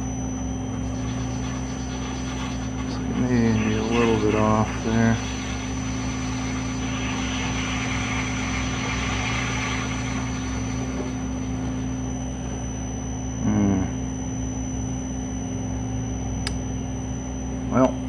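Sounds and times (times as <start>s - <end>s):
metal lathe motor humming: 0.0s - 12.8s
loud buzz: 0.0s - 14.4s
tool cutting spinning steel: 0.6s - 12.0s.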